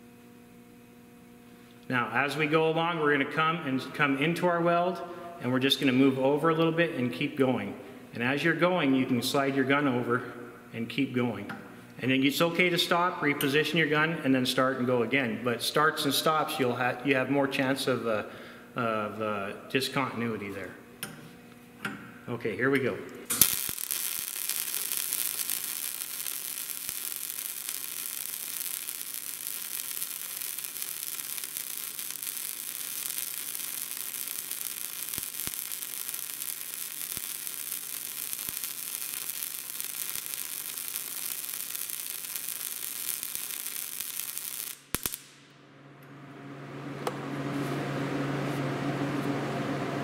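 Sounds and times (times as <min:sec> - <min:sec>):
welding arc with small pops: 0:22.7 - 0:45.6
low steady hum: 0:45.3 - 0:50.0.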